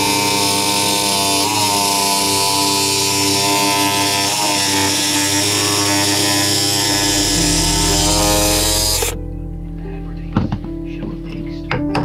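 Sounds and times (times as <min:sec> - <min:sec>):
jigsaw cutting wood: 0:00.0 - 0:09.2.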